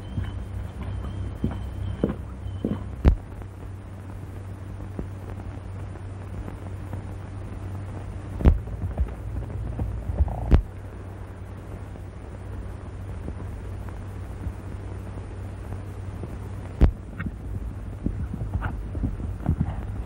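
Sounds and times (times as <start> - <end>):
horse hooves on dirt: 0.0 - 3.3, 16.8 - 20.0
low soundtrack hum: 0.0 - 20.0.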